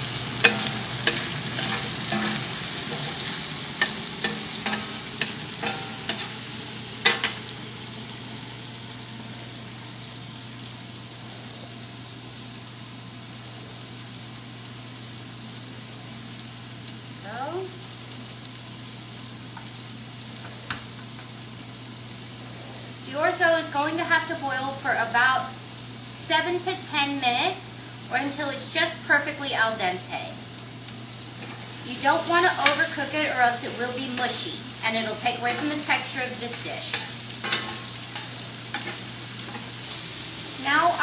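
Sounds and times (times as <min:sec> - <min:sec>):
chicken sizzling in oil: 0:00.0 - 0:41.0
metal spatula scraping pan: 0:00.2 - 0:06.4.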